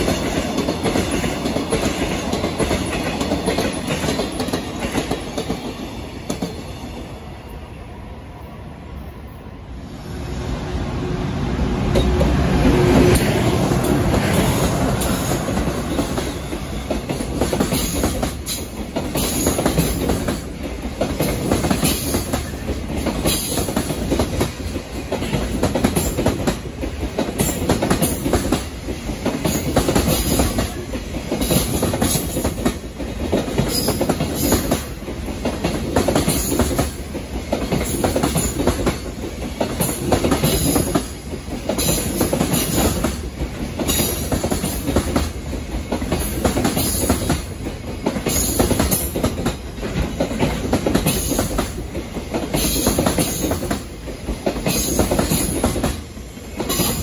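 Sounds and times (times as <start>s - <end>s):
electric locomotive passing: 0.0s - 57.0s
train wheels rumbling: 0.0s - 57.0s
wheels clacking over rail joints: 11.9s - 57.0s.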